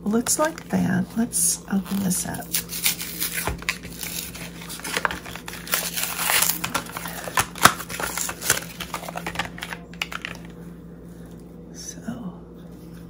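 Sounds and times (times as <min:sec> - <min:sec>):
packaging crinkling and tearing: 0:00.2 - 0:00.7, 0:01.8 - 0:10.6.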